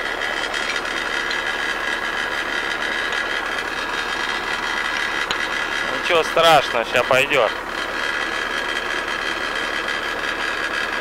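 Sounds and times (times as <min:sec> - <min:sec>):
tractor diesel engine idling: 0:00.0 - 0:11.0.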